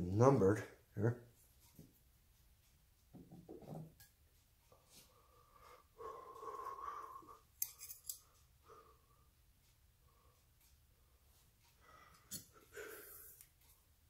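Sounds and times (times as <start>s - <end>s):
faint metal scrape: 7.6s - 8.2s.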